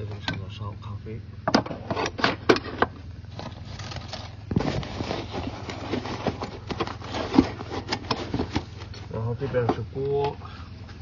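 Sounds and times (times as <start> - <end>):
nylon bag rustling: 3.3 - 8.9.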